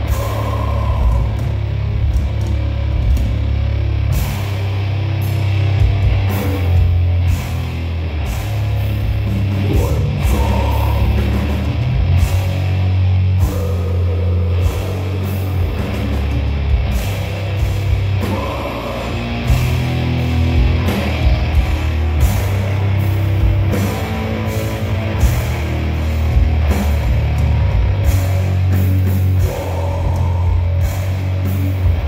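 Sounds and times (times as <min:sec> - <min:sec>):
heavy metal band playing live: 0:00.0 - 0:32.0.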